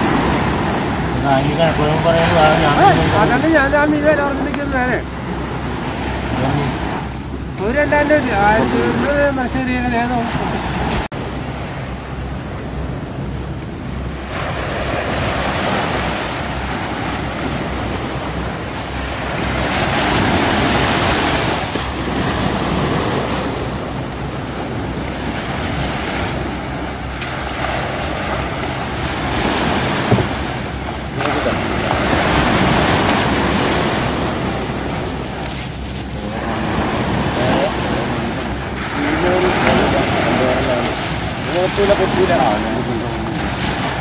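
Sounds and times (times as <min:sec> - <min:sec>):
surf breaking on beach: 0:00.0 - 0:44.0
wind buffeting microphone: 0:00.0 - 0:44.0.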